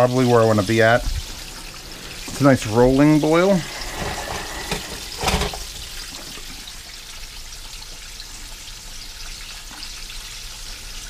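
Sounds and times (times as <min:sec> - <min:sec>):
water boiling in a pan: 0:00.0 - 0:11.0.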